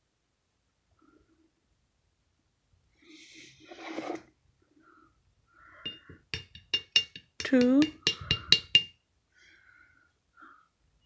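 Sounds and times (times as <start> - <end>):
spoon tapping glass jar rim: 5.9 - 9.0.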